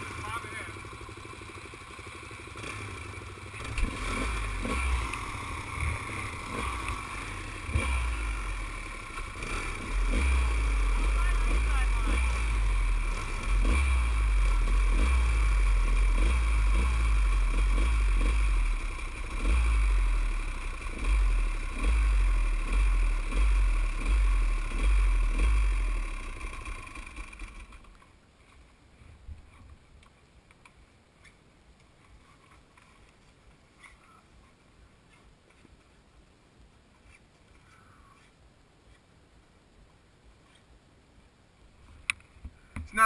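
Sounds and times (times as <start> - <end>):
dirt bike engine running: 0.0 - 28.0.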